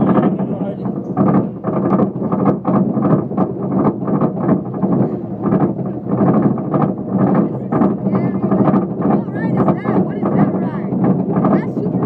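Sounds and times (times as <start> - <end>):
amusement ride rumbling and rattling: 0.0 - 12.0.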